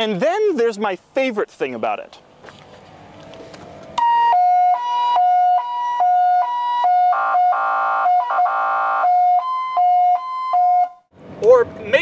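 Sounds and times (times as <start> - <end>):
fire truck siren wailing: 4.0 - 11.1.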